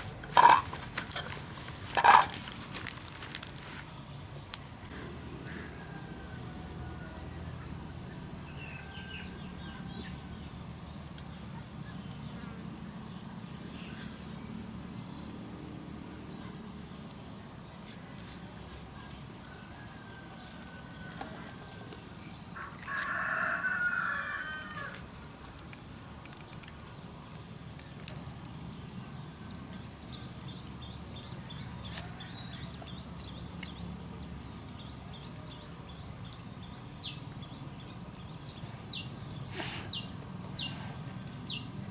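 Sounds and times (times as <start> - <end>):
rooster crowing: 22.6 - 25.0.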